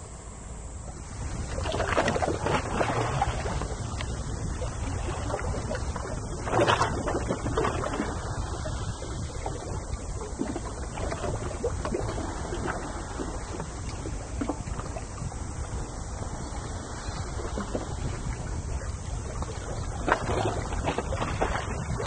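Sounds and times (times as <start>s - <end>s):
sea wash: 0.0s - 22.0s
wind rumbling on microphone: 0.0s - 22.0s
faint splashes and ticks: 0.9s - 22.0s.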